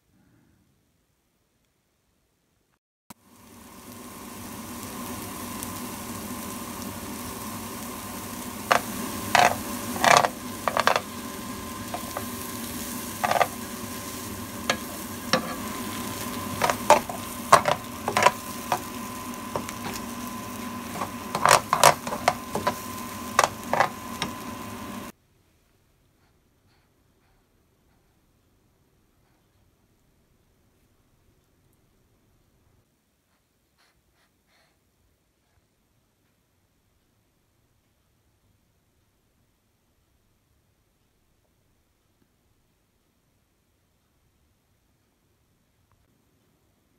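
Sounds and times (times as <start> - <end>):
onions sizzling in a pan: 3.1 - 25.2
utensil scraping and tapping pan: 8.7 - 11.2, 13.1 - 13.6, 14.6 - 24.4.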